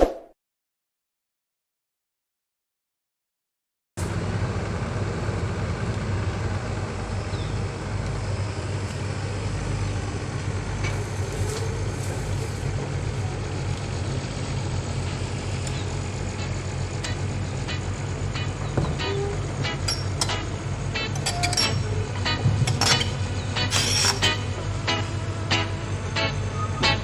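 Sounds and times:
diesel engine idling: 4.0 - 27.0.

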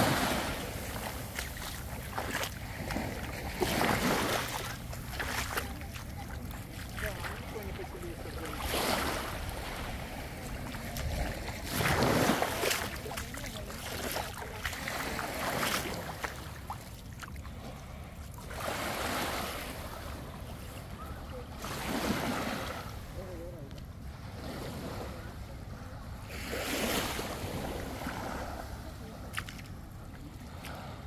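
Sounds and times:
sea water washing in: 0.0 - 17.0.

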